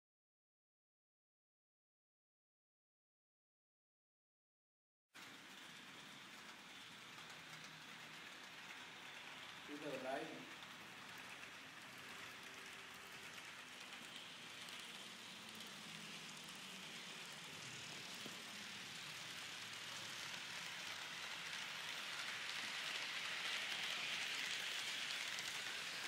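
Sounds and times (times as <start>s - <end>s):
model train wheels rolling on rails: 5.2s - 26.0s.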